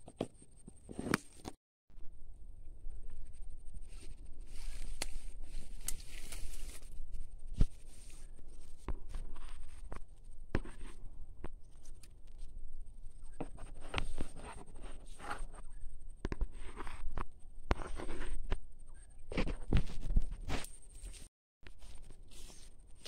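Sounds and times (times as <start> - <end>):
dry leaves and twigs crackling: 3.1 - 10.4, 11.5 - 13.4, 19.5 - 23.0.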